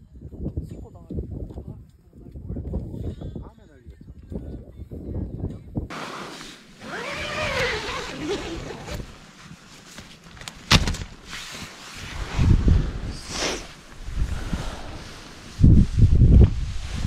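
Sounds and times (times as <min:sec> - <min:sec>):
wind gusting against tent: 0:00.1 - 0:17.0
tent fabric snapping: 0:05.9 - 0:12.0.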